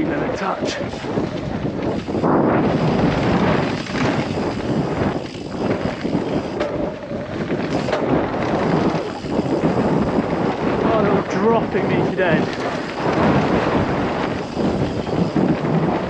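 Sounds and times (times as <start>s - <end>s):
tyres rolling over dirt: 0.0s - 16.0s
wind rushing over microphone: 0.0s - 16.0s
bike knocking over bumps: 0.8s - 16.0s.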